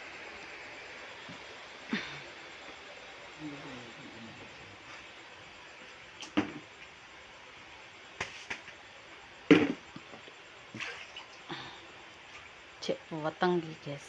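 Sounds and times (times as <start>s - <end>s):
plastic basins and pot knocking: 6.2s - 6.7s, 9.5s - 10.2s.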